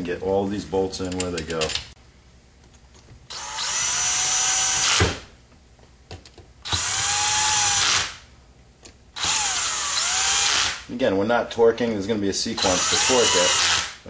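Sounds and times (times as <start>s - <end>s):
electric drill whining: 3.3s - 5.0s, 6.7s - 8.1s, 9.2s - 10.8s, 12.6s - 14.0s.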